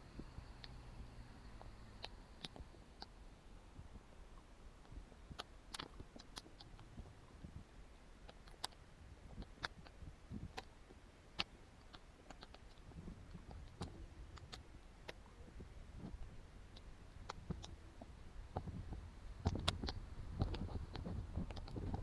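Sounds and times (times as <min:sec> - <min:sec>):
dog jaws snapping and lapping water: 0:05.3 - 0:06.9, 0:08.2 - 0:10.7, 0:11.3 - 0:15.3, 0:18.6 - 0:22.0.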